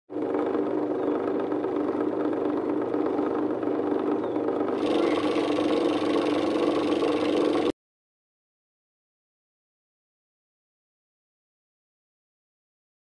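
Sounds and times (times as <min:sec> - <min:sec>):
flour mill motor running: 0:00.1 - 0:07.7.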